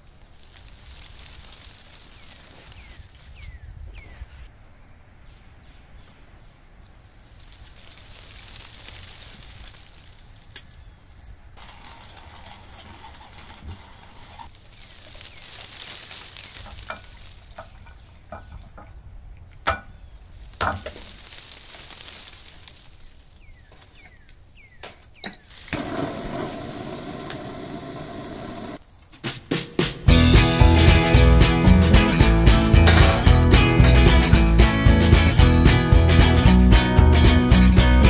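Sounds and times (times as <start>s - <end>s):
hand-cranked spice grinder turning: 11.6s - 14.5s
butane torch hissing: 25.5s - 28.8s.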